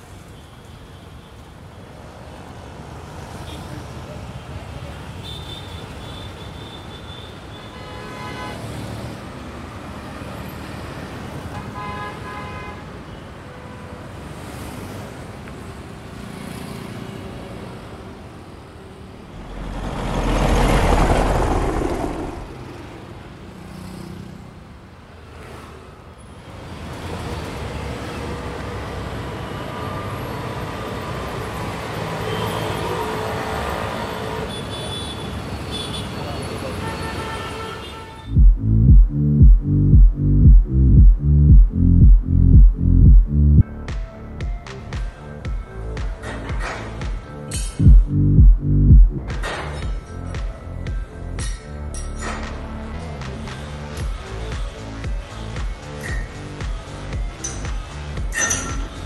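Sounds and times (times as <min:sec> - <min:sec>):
street traffic: 0:00.0 - 0:59.0
vehicle passing close: 0:19.2 - 0:23.3.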